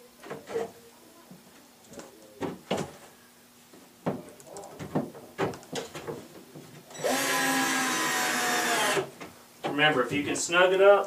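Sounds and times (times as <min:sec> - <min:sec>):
power drill driving screw: 0:06.9 - 0:09.1.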